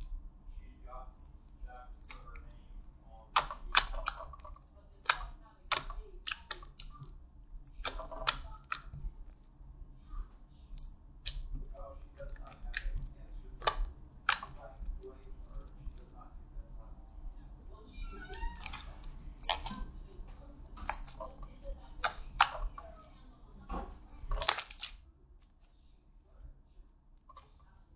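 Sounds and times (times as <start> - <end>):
slime clicking and popping: 3.4 - 7.1, 7.7 - 9.5, 10.7 - 16.2, 18.0 - 21.3, 22.0 - 22.9, 24.2 - 25.0.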